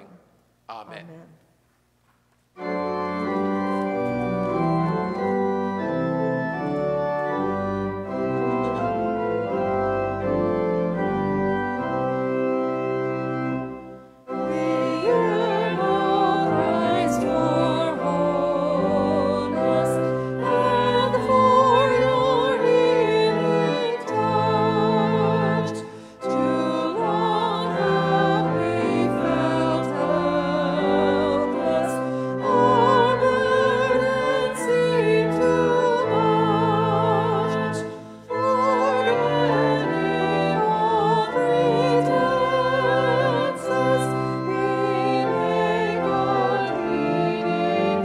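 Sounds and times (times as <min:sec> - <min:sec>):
organ playing sustained chords: 0:02.6 - 0:48.0
person singing with vibrato: 0:14.4 - 0:48.0.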